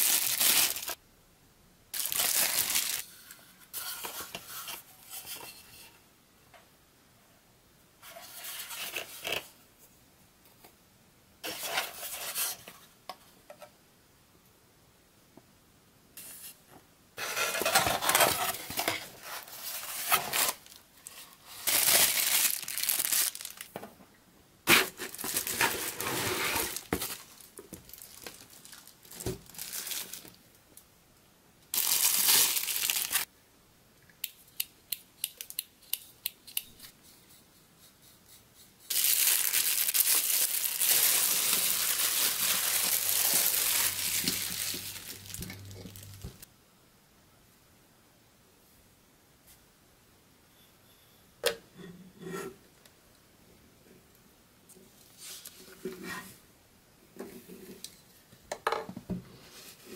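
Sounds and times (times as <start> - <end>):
plastic wrapping crinkling: 0.0 - 1.0, 2.0 - 3.0, 17.6 - 23.8, 24.7 - 30.4, 31.7 - 33.3, 38.9 - 46.5
paper leaflet rustling: 38.9 - 46.4.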